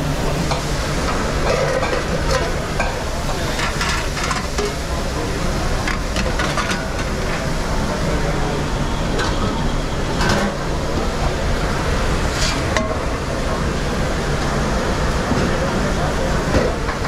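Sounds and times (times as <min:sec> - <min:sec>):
steady background noise: 0:00.0 - 0:17.0
metal utensils clinking and scraping: 0:01.4 - 0:02.5.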